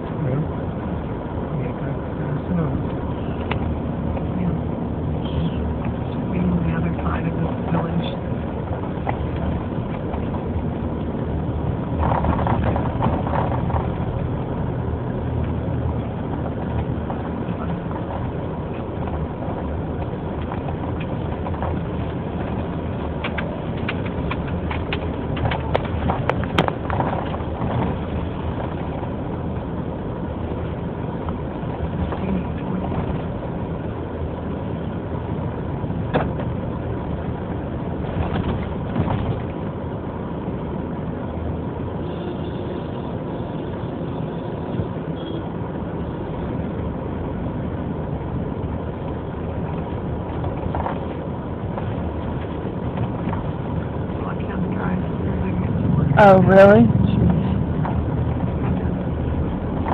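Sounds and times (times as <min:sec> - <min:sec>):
road noise: 0:00.0 - 0:59.9
sharp clicks and knocks: 0:11.9 - 0:14.2, 0:15.3 - 0:29.2, 0:36.0 - 0:39.7.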